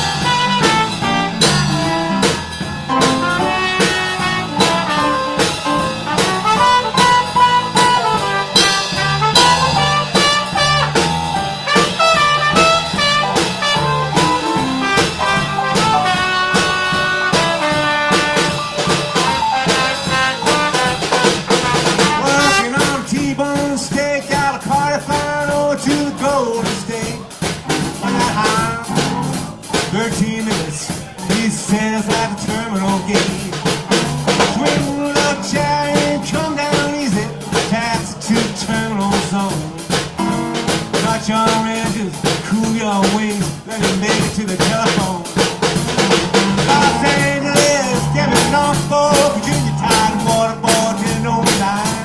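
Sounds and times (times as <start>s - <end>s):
electric piano: 0.0s - 22.6s, 27.1s - 29.9s, 32.9s - 37.7s, 39.5s - 41.0s, 45.3s - 52.0s
trumpet solo: 0.0s - 23.0s
drum kit: 0.0s - 52.0s.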